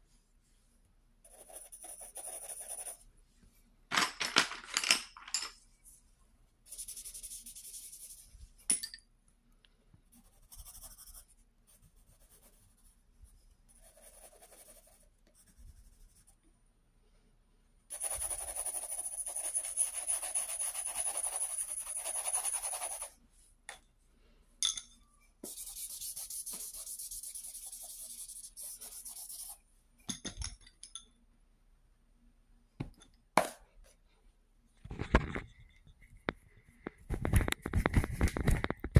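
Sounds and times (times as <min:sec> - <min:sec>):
pencil scratching on paper: 0:01.3 - 0:03.0, 0:06.7 - 0:08.3, 0:10.1 - 0:13.0, 0:13.7 - 0:16.3, 0:17.9 - 0:23.2, 0:25.4 - 0:29.6.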